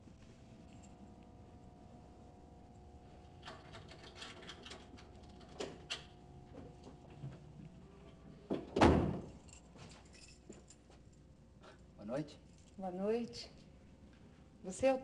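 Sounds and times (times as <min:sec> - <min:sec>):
door shutting with a thud: 0:08.5 - 0:09.3.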